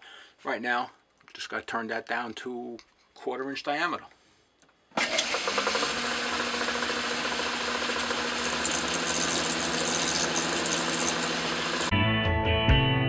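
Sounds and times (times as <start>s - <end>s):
lathe humming and gear rattle: 5.0s - 11.9s
high hiss of cutting tool: 6.4s - 11.9s.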